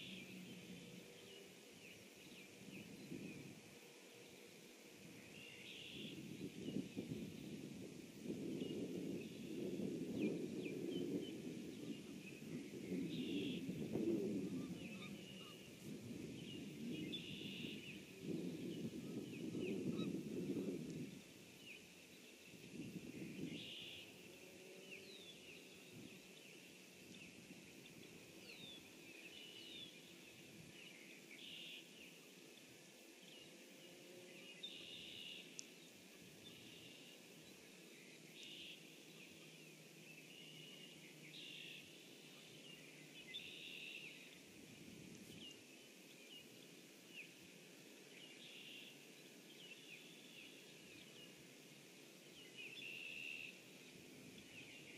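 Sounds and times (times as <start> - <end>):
distant songbird song: 0.0 - 54.9
soft steady hiss: 0.0 - 54.9
low bird call: 16.5 - 18.2.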